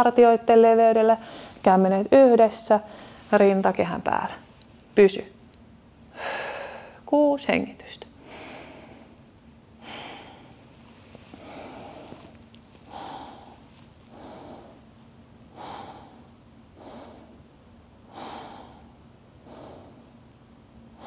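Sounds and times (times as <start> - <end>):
woman breathing deeply: 1.2 - 1.6, 2.9 - 3.3, 6.1 - 7.0, 8.2 - 9.2, 9.8 - 20.2.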